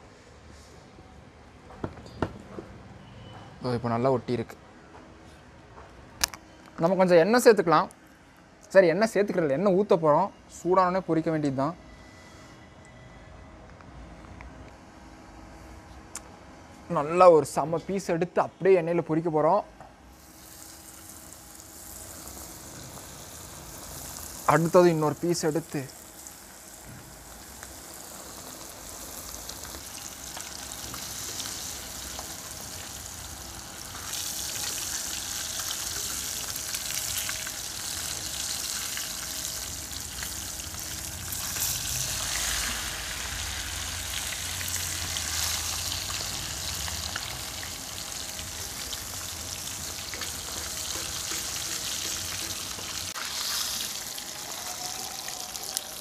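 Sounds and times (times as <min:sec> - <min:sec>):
fish sizzling in oil: 0:20.1 - 0:56.0.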